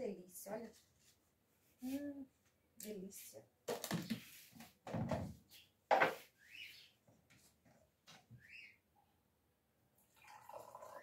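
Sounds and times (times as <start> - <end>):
dishes knocking and rattling: 5.9 - 6.2.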